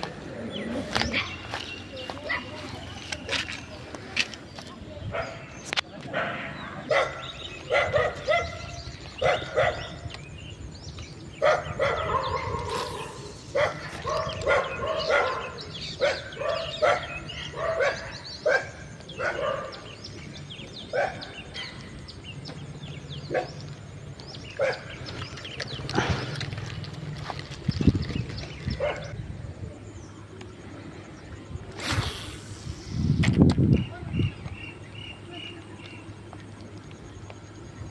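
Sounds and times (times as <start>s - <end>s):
dogs barking: 5.1s - 10.1s, 11.4s - 20.2s, 20.8s - 22.0s, 23.2s - 23.8s, 24.4s - 26.4s, 28.6s - 29.2s
steady low hum: 6.2s - 37.9s.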